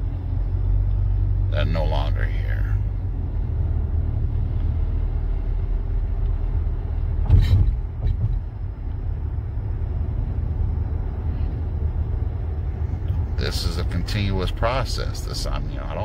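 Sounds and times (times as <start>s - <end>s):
car engine and road rumble: 0.0s - 16.0s
thump in car: 7.2s - 8.6s.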